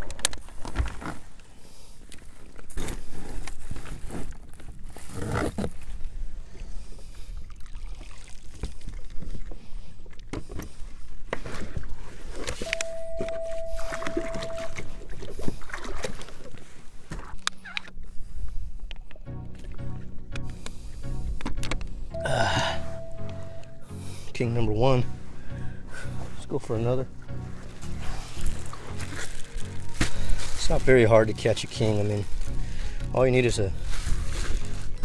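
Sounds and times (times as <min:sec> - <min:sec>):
water lapping against kayak: 0:00.4 - 0:22.1, 0:25.0 - 0:35.0
steady mid-pitched tone: 0:12.7 - 0:15.1, 0:19.3 - 0:25.5.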